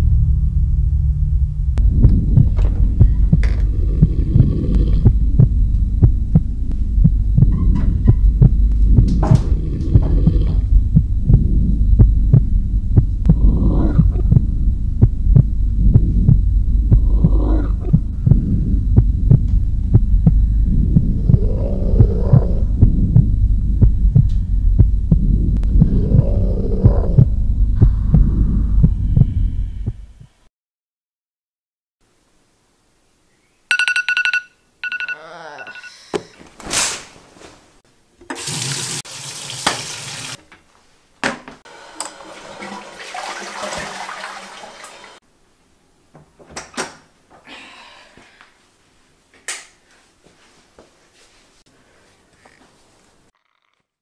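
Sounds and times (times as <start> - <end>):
irregular throbbing pulse: 0.0 - 30.2
low droning rumble: 0.0 - 30.3.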